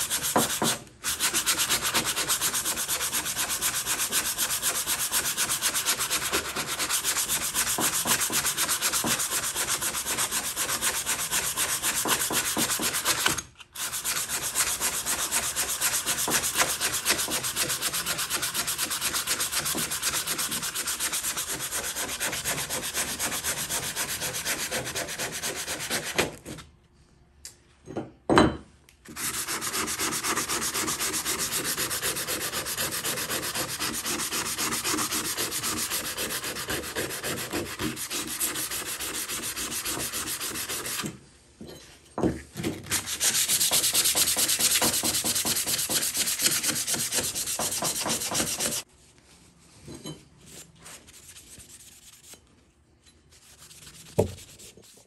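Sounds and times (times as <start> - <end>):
sandpaper rubbing: 0.0 - 26.4, 29.1 - 41.0, 42.9 - 48.9, 50.5 - 52.4, 53.3 - 55.0.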